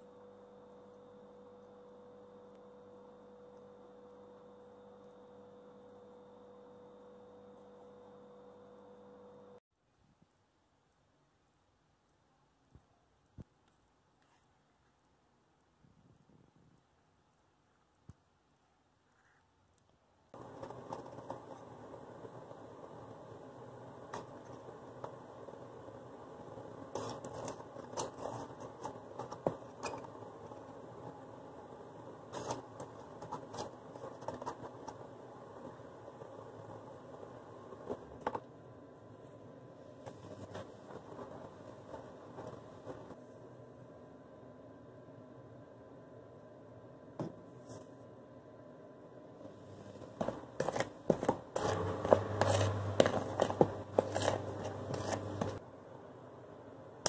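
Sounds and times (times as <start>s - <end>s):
faint hum: 0.0s - 57.0s
utensil scraping a plastic bowl: 50.1s - 55.6s.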